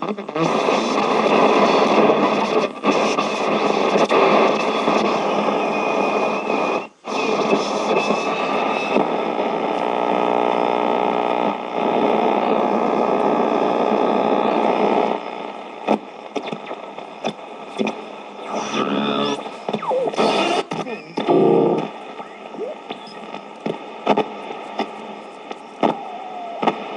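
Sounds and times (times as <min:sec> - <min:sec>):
radio crackles and clicks: 0:00.0 - 0:26.9
radio static hiss: 0:00.0 - 0:26.9
radio whistles and squeals: 0:01.6 - 0:09.4, 0:14.8 - 0:24.6, 0:25.3 - 0:26.9.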